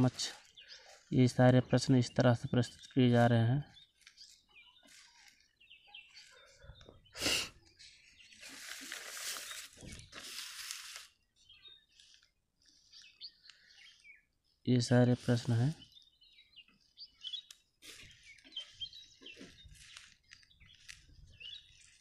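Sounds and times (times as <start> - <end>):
paper rustling and crinkling: 4.0 - 5.6, 7.8 - 11.2, 17.8 - 22.0.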